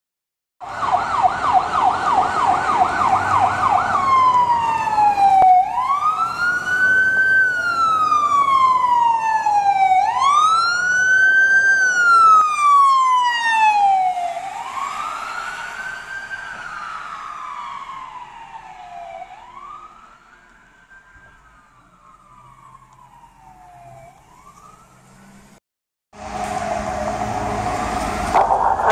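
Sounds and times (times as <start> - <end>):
ambulance siren yelp and wail: 0.6 - 25.1, 26.2 - 28.9.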